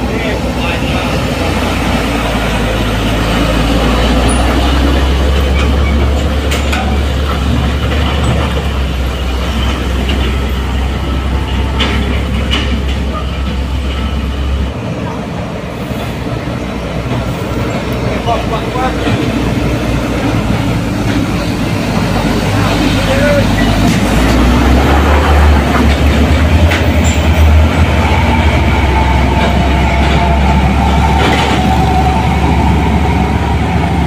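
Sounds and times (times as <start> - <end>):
truck diesel engine droning: 0.0 - 15.2
traffic noise: 0.0 - 34.0.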